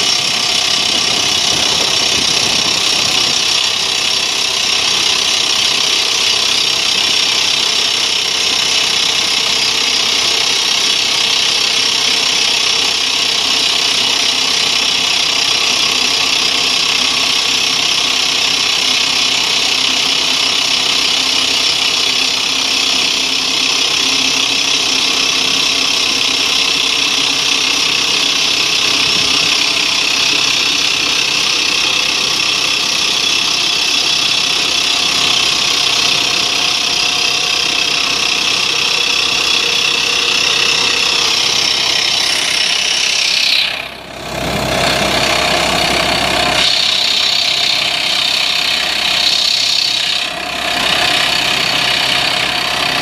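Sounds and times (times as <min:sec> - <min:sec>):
drill rig boring into rock: 0:00.0 - 0:53.0.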